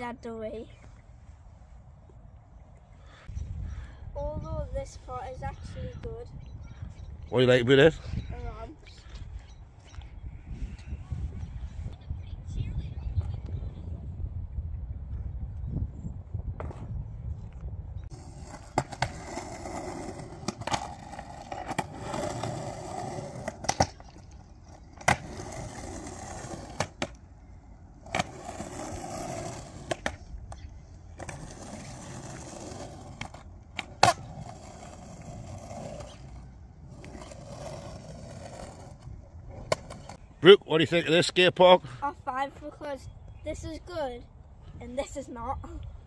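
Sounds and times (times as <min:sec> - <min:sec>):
skateboard wheels on rough concrete: 0:18.1 - 0:40.3
skateboard clacks: 0:18.2 - 0:24.4.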